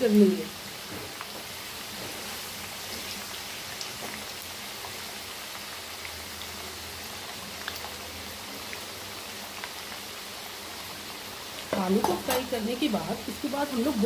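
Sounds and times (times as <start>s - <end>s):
oil popping and crackling: 0.0s - 14.0s
potatoes sizzling in oil: 0.0s - 14.0s.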